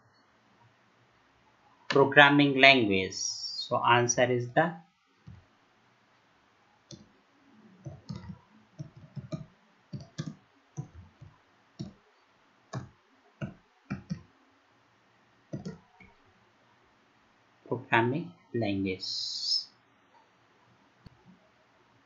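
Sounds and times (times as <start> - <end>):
keyboard keys clicking: 7.8 - 12.0, 12.8 - 14.2, 15.5 - 16.1.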